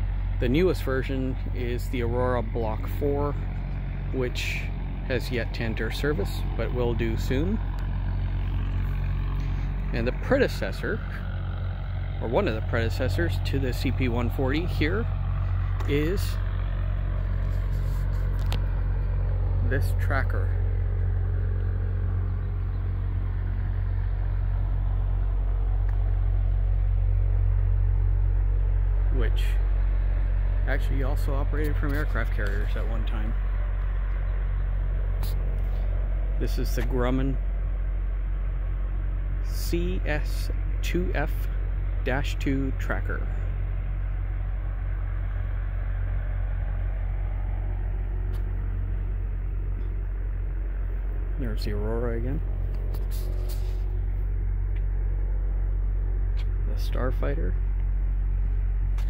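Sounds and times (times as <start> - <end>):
low engine drone: 0.0 - 59.0
low mechanical rumble: 0.0 - 59.0.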